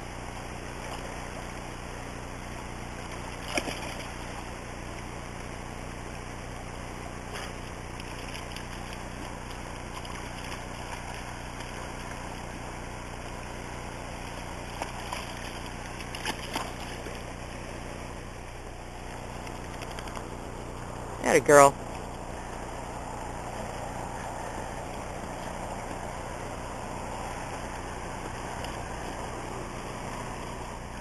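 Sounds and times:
river water flowing: 0:00.0 - 0:31.0
dog splashing through water: 0:03.0 - 0:04.6, 0:07.2 - 0:20.4.

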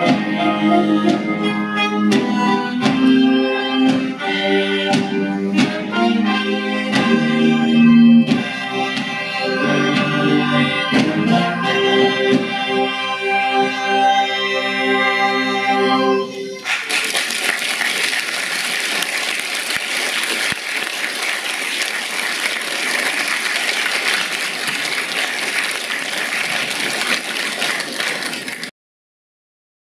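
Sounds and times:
audience applause: 0:16.6 - 0:28.7.

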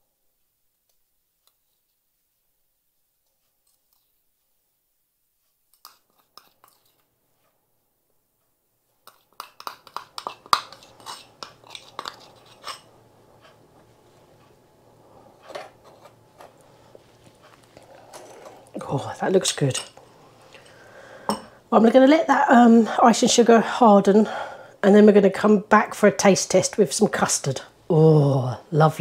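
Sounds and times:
metal spoon scraping china bowl: 0:05.7 - 0:07.0, 0:09.0 - 0:12.9.

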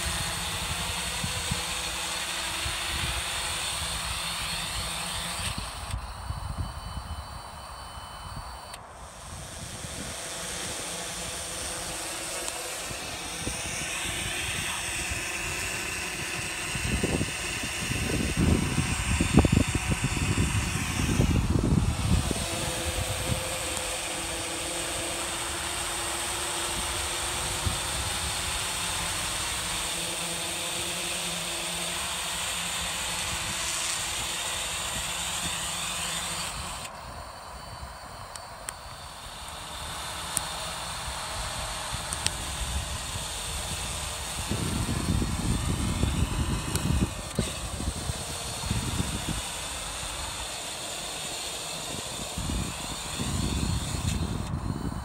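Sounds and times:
drone propellers humming: 0:00.0 - 0:55.0
low gusty rumbling: 0:12.8 - 0:24.0, 0:41.5 - 0:49.5.

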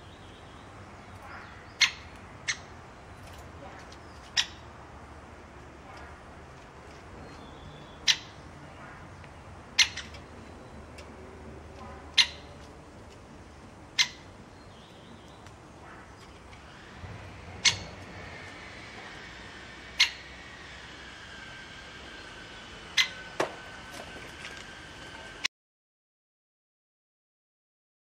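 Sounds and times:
woodpecker sharp kik call: 0:09.8 - 0:10.2, 0:12.1 - 0:12.5, 0:17.6 - 0:18.0, 0:20.0 - 0:20.2.

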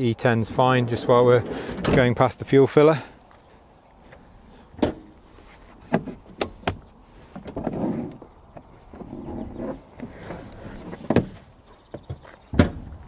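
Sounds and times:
seat latches clicking and clunking: 0:04.1 - 0:11.4
seat rustling shuffle: 0:05.0 - 0:12.5.

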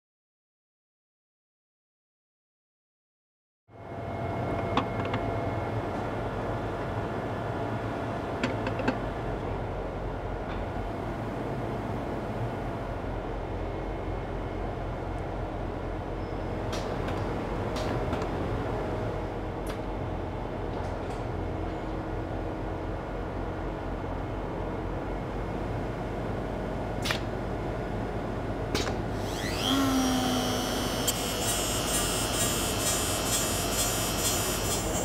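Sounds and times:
steady machine hum: 0:23.0 - 0:35.0
motor high whine: 0:29.1 - 0:35.0
sharp machine clicks: 0:29.3 - 0:35.0.

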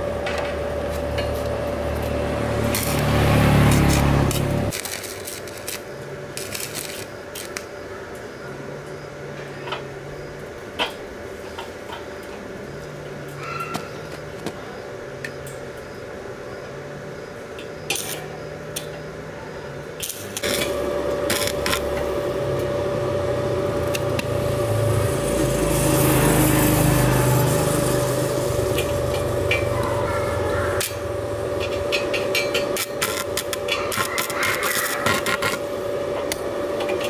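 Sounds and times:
welding arc crackling: 0:00.8 - 0:07.9, 0:17.9 - 0:18.9, 0:19.9 - 0:37.0.

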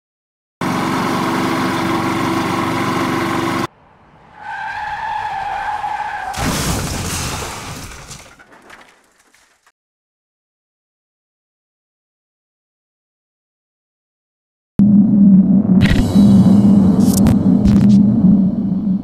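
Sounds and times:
tires squealing: 0:02.2 - 0:09.7
loud skidding rush: 0:03.7 - 0:09.7.

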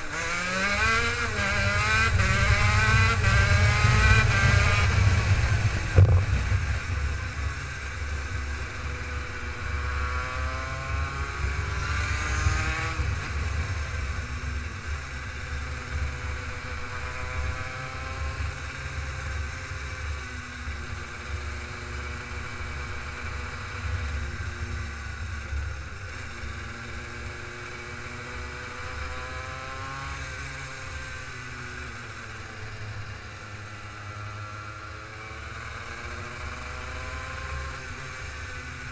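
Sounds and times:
kart engine revving: 0:00.0 - 0:18.5
heavy low rumble: 0:03.6 - 0:08.0.

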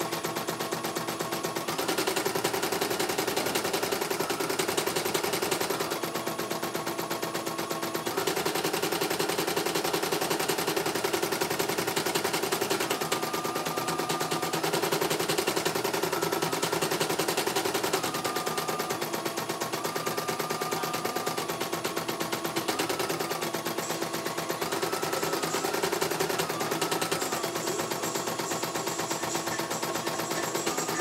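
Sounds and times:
motor whine: 0:10.8 - 0:31.0.

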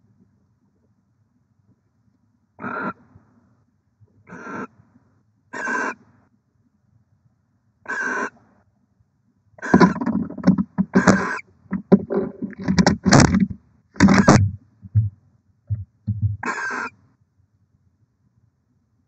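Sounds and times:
owl rasping hiss calls: 0:02.6 - 0:03.0, 0:04.3 - 0:04.7, 0:05.5 - 0:06.0, 0:07.9 - 0:08.4, 0:11.1 - 0:11.4, 0:16.4 - 0:16.9
owl scuffling and wing-flapping: 0:09.6 - 0:15.1.

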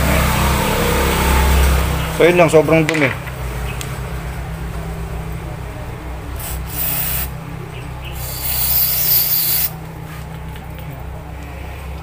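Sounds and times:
aerosol spray hiss: 0:06.5 - 0:07.3, 0:08.2 - 0:09.7.

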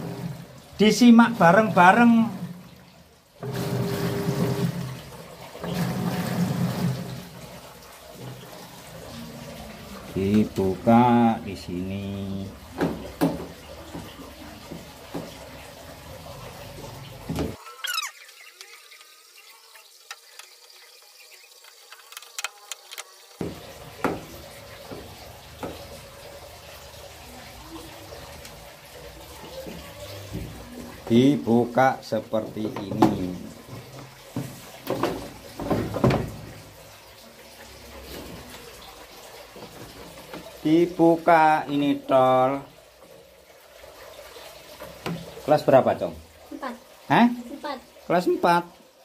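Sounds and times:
washing machine motor humming: 0:00.0 - 0:42.8
water swishing in tub: 0:00.0 - 0:48.7.

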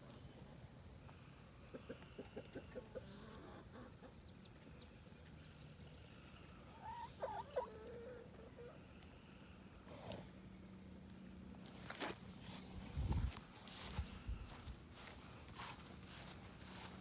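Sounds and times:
hen clucking: 0:01.6 - 0:04.4, 0:06.7 - 0:08.8.

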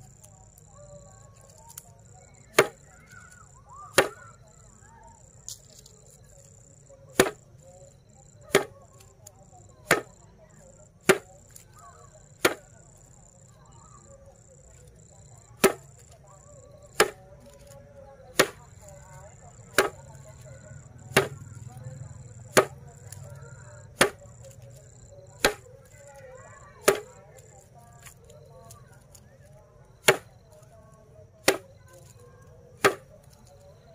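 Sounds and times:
high insect chirping: 0:00.0 - 0:33.9
grass stalks slapping a board: 0:01.4 - 0:01.9, 0:02.5 - 0:04.4, 0:07.1 - 0:07.5, 0:08.4 - 0:10.2, 0:11.0 - 0:12.7, 0:15.6 - 0:16.2, 0:16.8 - 0:29.2, 0:30.0 - 0:30.7, 0:31.4 - 0:33.7.

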